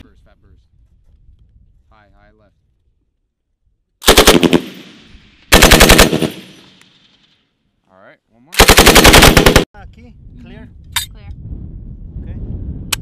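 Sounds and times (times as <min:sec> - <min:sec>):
machine gun firing bursts: 0:04.0 - 0:06.8, 0:08.6 - 0:09.7.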